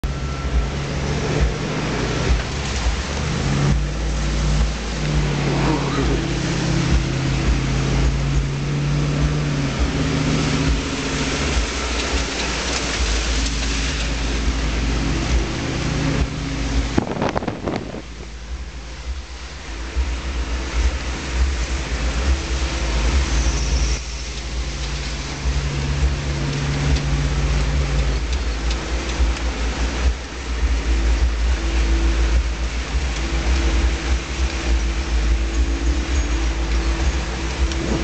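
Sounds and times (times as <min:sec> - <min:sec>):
off-road vehicle engine running: 0:00.0 - 0:38.0
water and mud spraying: 0:00.0 - 0:38.0.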